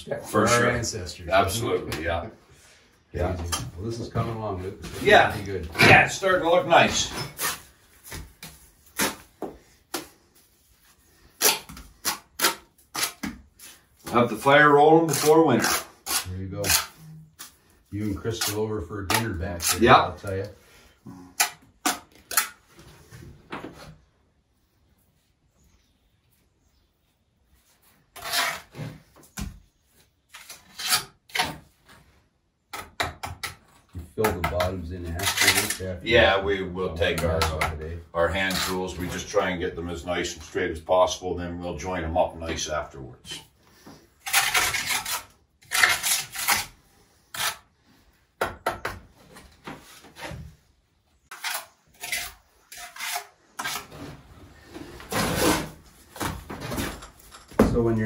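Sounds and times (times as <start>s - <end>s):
brick scraping on mortar: 11.3s - 20.4s, 28.1s - 29.0s, 34.2s - 39.5s, 44.1s - 47.7s, 51.2s - 55.9s
trowel scraping and tapping bricks: 32.7s - 35.8s, 37.0s - 39.4s, 44.2s - 47.6s, 51.3s - 53.9s.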